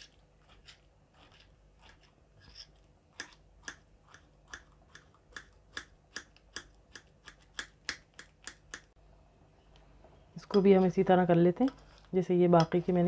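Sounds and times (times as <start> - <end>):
utensil tapping while mashing: 11.5 - 13.0.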